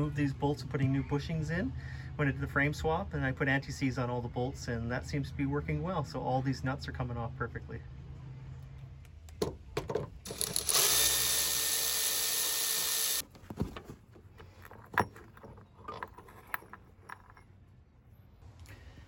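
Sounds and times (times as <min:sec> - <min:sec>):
electric ratchet spinning: 0:10.3 - 0:13.2.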